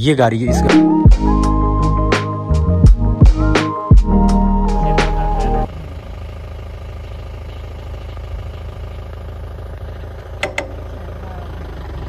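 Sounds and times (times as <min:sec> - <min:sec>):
background music: 0:00.0 - 0:05.7
jeep engine running: 0:00.0 - 0:12.0.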